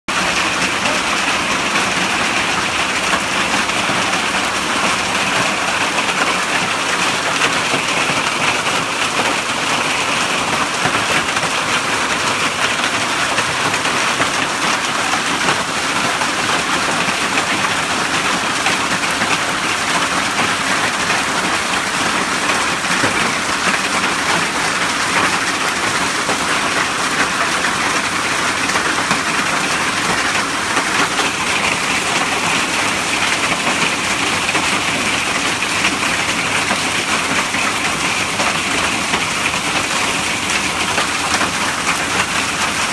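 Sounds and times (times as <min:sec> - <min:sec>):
hail and rain on grass: 0:00.1 - 0:42.9.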